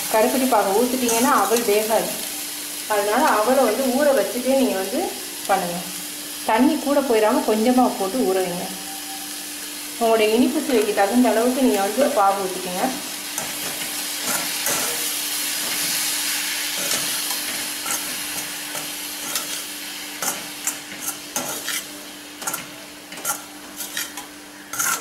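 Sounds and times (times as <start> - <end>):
syrup sizzling in a pan: 0.0 - 25.0
ladle scraping and tapping pan: 20.2 - 25.0.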